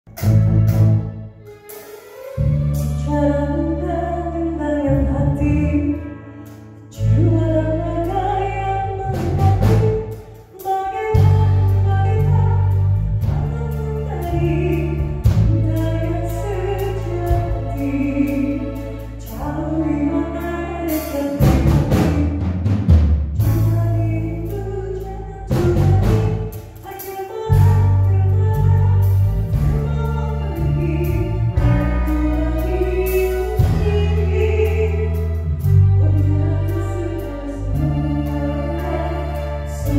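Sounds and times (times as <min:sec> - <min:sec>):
rock band playing: 0:00.1 - 0:03.1, 0:25.5 - 0:36.0
drum fills: 0:20.9 - 0:24.0.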